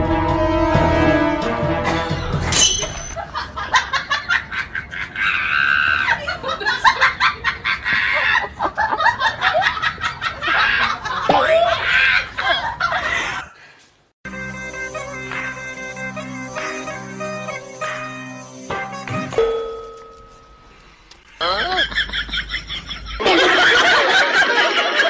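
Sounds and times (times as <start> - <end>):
background music: 0.0 - 3.2, 14.3 - 19.8
man and woman laughing: 3.2 - 13.5, 21.4 - 25.0.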